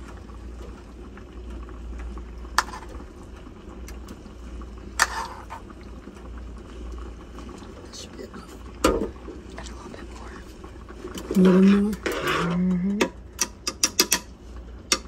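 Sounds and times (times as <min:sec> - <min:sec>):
broth boiling in saucepan: 0:00.0 - 0:15.0
spoon knocking against pan: 0:13.0 - 0:14.3.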